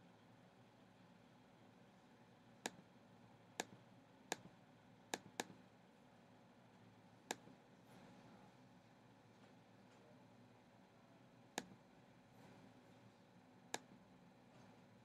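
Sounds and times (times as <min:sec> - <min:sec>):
computer mouse button clicking: 0:03.6 - 0:04.5, 0:05.2 - 0:05.6.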